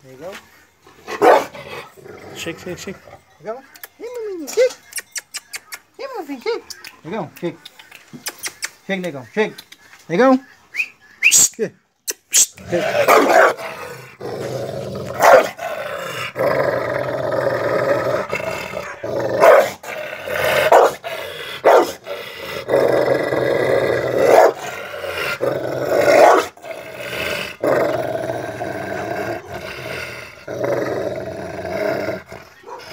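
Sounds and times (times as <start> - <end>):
dog barking: 1.2 - 1.5, 13.1 - 13.6, 15.2 - 15.6, 18.8 - 19.8, 20.7 - 21.0, 21.6 - 22.0, 24.2 - 24.6, 26.2 - 26.5, 32.6 - 32.9
dog growling and snarling: 12.6 - 32.9.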